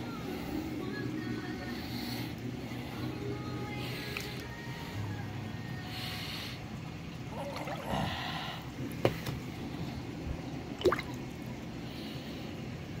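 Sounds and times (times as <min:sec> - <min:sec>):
water splashing and dripping: 0:10.7 - 0:11.6
sharp splashes: 0:10.8 - 0:11.2.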